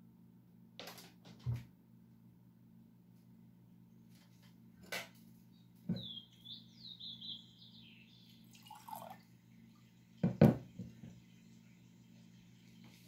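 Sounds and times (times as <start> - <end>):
water trickling into a glass: 8.3 - 13.0
glass knocking: 10.2 - 10.9.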